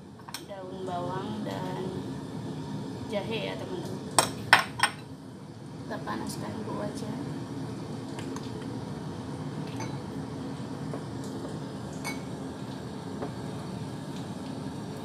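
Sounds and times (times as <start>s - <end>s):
kitchenware clinking: 4.2s - 5.0s, 9.7s - 10.0s, 12.0s - 12.3s.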